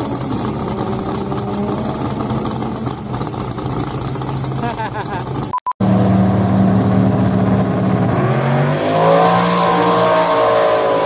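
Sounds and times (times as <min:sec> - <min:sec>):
drag racing engines revving: 0:00.0 - 0:11.0.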